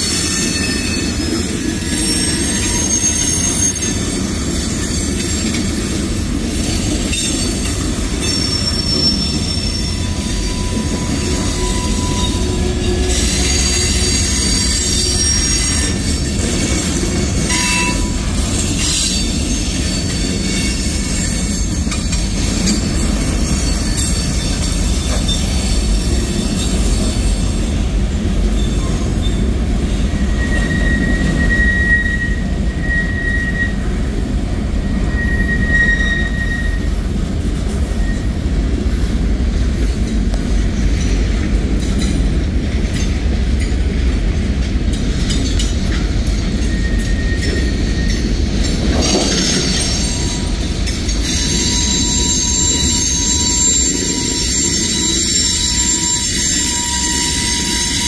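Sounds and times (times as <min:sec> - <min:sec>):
high-pitched wheel squeals: 0:00.0 - 0:05.7, 0:06.6 - 0:27.6, 0:28.5 - 0:34.0, 0:34.8 - 0:37.0, 0:46.4 - 0:58.0.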